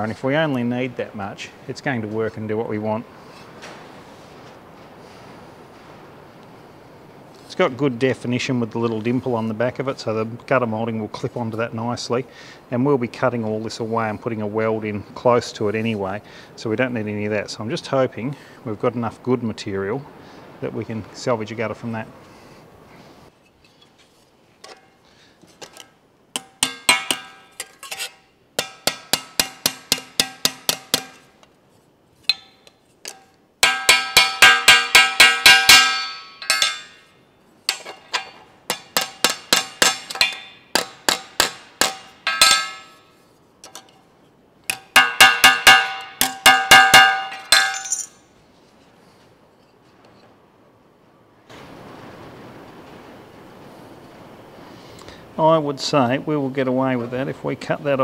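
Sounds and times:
hammer tapping sheet steel: 26.4s - 31.5s, 32.2s - 37.1s, 37.7s - 43.9s, 44.7s - 48.2s.

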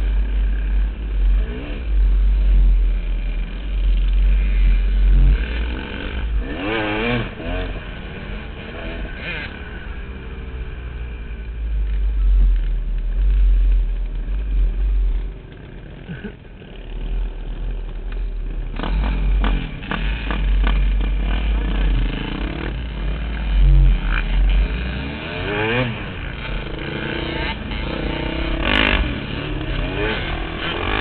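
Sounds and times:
dirt bike engine revving: 0.0s - 11.4s, 14.6s - 31.0s
second dirt bike revving: 0.0s - 31.0s.

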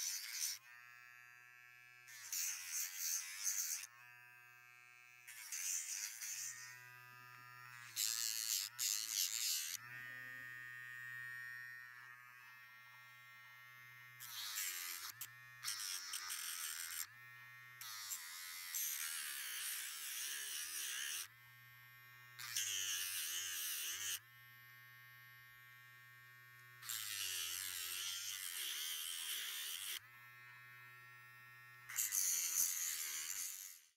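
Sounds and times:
nail drill grinding nails: 0.0s - 0.6s, 2.1s - 3.9s, 5.2s - 6.8s, 7.7s - 9.8s, 14.2s - 17.1s, 17.8s - 21.3s, 22.4s - 24.2s, 26.8s - 30.0s, 31.9s - 33.9s
pet nail drill motor whine: 0.0s - 33.9s.

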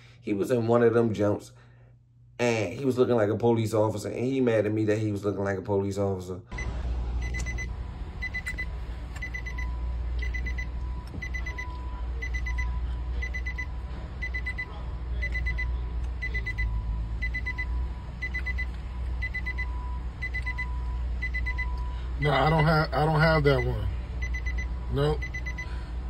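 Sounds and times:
steady low rumble: 6.5s - 26.0s
vehicle warning chime: 6.6s - 26.0s.

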